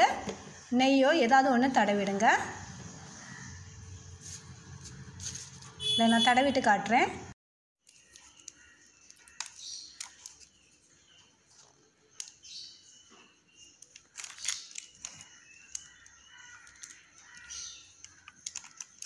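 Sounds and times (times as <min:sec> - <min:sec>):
paper crinkling: 0:04.2 - 0:05.8, 0:07.8 - 0:10.8, 0:13.8 - 0:19.0.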